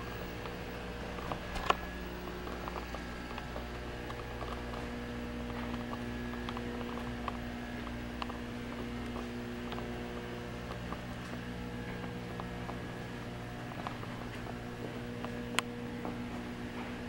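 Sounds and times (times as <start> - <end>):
low room hum: 0.0 - 17.0
faint clicks and taps: 1.2 - 13.0.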